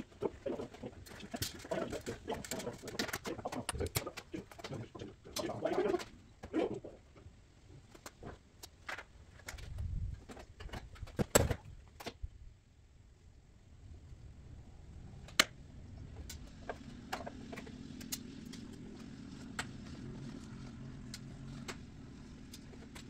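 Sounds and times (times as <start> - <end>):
bird cooing: 0.0 - 7.0.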